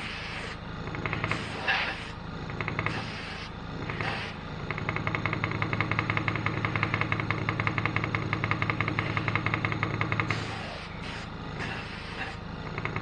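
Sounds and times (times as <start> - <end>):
spray gun hissing: 0.0 - 0.6, 1.2 - 2.2, 2.8 - 4.4, 10.2 - 12.4
air compressor pulsing hum: 0.0 - 13.0.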